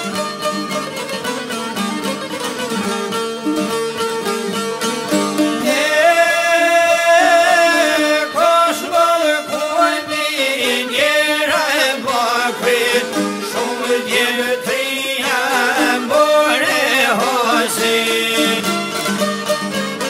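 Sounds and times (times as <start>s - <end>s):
plucked lutes: 0.0s - 20.0s
man singing: 5.6s - 18.8s.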